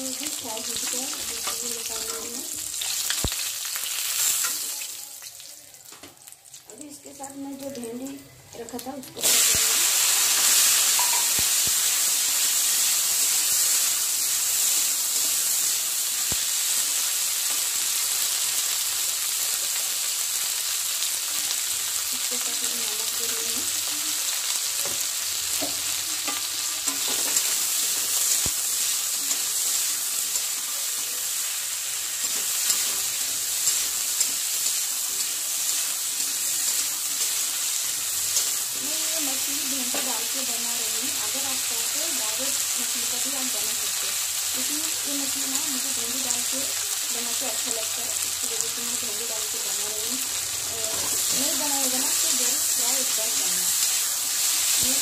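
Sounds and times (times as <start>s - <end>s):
okra sizzling in hot oil: 0.0s - 55.0s.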